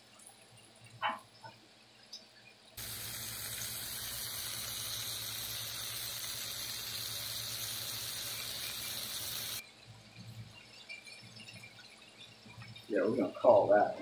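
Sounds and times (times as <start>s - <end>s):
meat sizzling on griddle: 2.8s - 9.6s.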